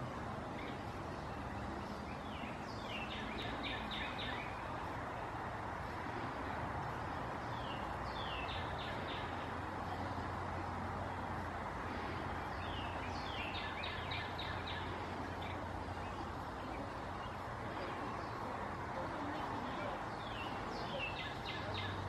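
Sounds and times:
wren singing: 0:00.4 - 0:04.7, 0:07.1 - 0:10.2, 0:12.4 - 0:22.0.

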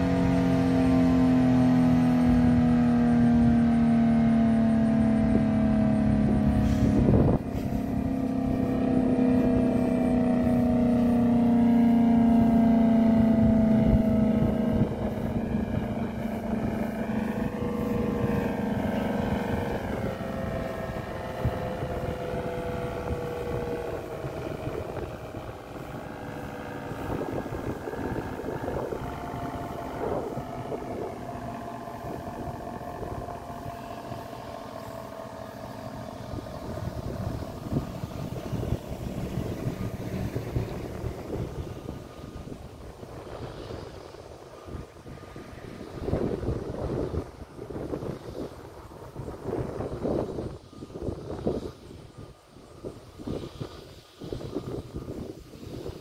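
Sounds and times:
warning siren winding down: 0:00.0 - 0:51.9.

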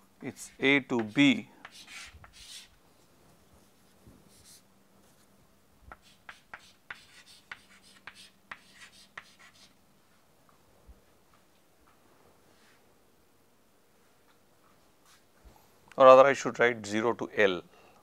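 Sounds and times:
chalk writing on chalkboard: 0:00.4 - 0:02.7, 0:04.3 - 0:04.6, 0:05.9 - 0:09.7.

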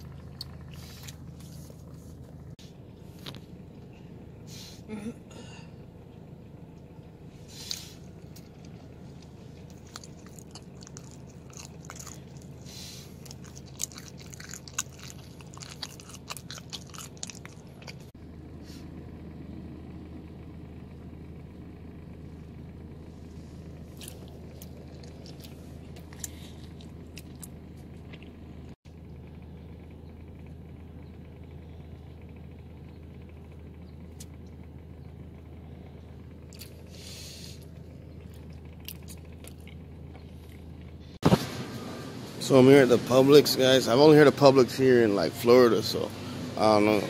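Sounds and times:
person chewing crunchy food: 0:00.0 - 0:02.3, 0:07.6 - 0:18.2, 0:23.8 - 0:28.8, 0:36.5 - 0:40.7
steady low hum: 0:00.0 - 0:47.0.

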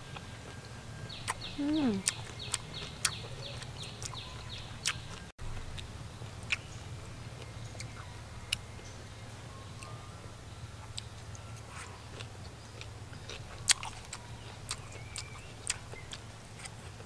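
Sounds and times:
low steady hum: 0:00.0 - 0:17.0
chewing and chopstick clicks: 0:12.2 - 0:16.8.

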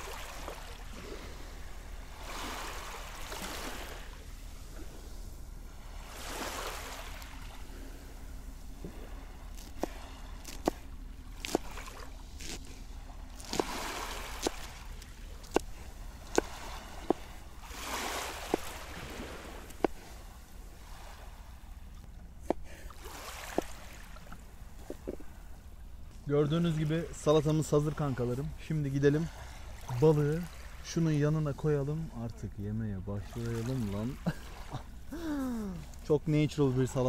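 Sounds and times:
small waves washing on shore: 0:00.0 - 0:37.0
knife chopping on wooden board: 0:09.6 - 0:10.8, 0:11.4 - 0:11.8, 0:15.5 - 0:15.7, 0:18.4 - 0:18.8, 0:23.5 - 0:23.7.

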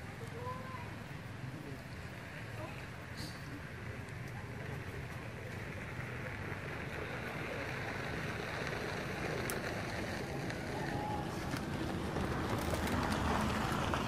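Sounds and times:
hiss: 0:02.6 - 0:03.7.

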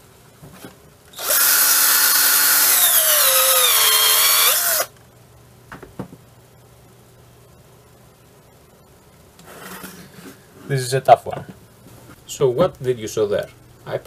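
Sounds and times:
cordless drill whining: 0:01.2 - 0:04.9.

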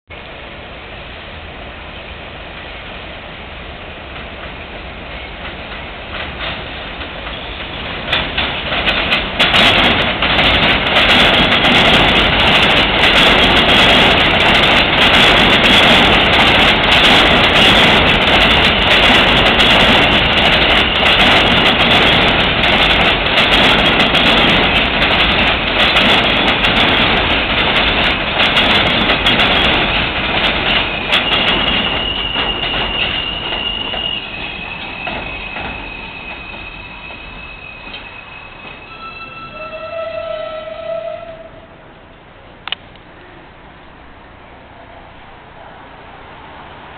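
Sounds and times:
subway train rumble: 0:00.1 - 0:46.9
wheels clattering over rail joints: 0:04.2 - 0:39.4
high wheel squeal: 0:30.7 - 0:41.6.

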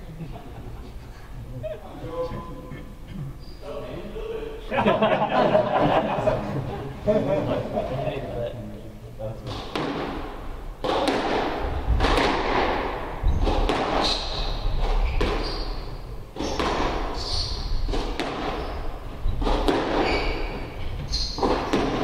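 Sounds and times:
ball thudding against walls: 0:09.5 - 0:22.0
squash ball hitting rackets: 0:09.5 - 0:22.0.

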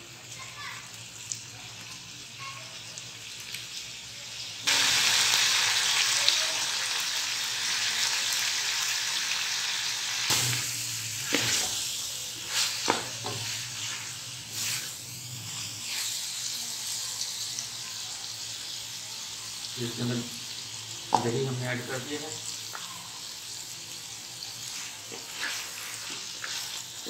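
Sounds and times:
meat sizzling in hot oil: 0:00.0 - 0:27.0
wooden spoon scraping a pot: 0:24.7 - 0:27.0.

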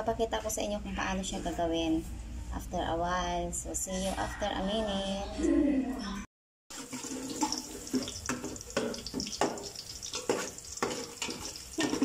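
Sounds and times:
tap water running into sink: 0:06.8 - 0:12.0.

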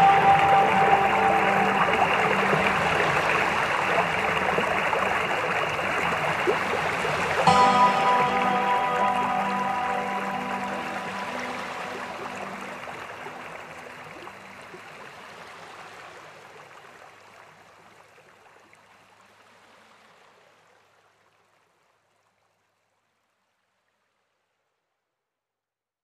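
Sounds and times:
soft background music: 0:00.0 - 0:06.8, 0:07.4 - 0:14.9
stream rippling over rocks: 0:00.0 - 0:22.5.

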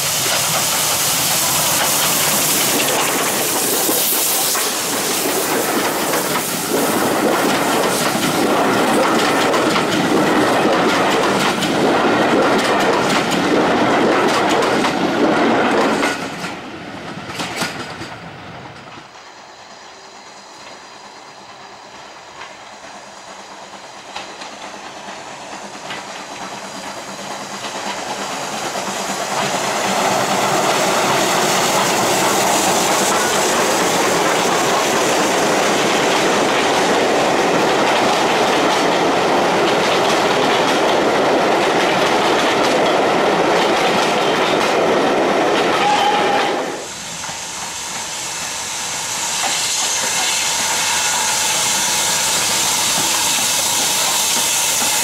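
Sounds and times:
steady hiss: 0:00.0 - 0:10.6, 0:18.6 - 0:40.4, 0:46.7 - 0:55.0
train wheels clicking over rail joints: 0:00.0 - 0:55.0.

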